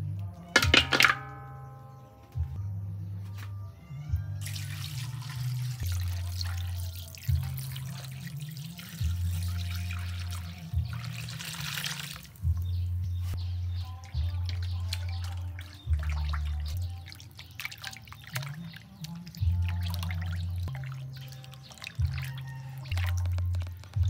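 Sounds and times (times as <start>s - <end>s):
liquid pouring into a metal wok: 4.4s - 12.5s.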